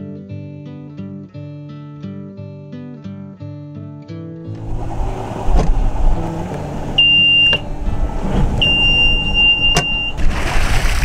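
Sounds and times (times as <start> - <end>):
low rumble: 4.5 - 10.5
alarm buzzer beeping: 7.0 - 7.7, 8.6 - 10.2.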